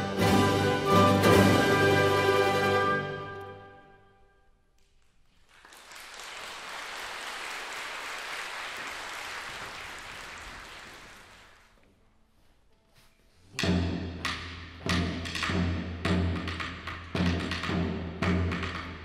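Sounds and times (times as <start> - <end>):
mandolin orchestra chord: 0.0 - 4.2
audience applauding: 5.3 - 11.8.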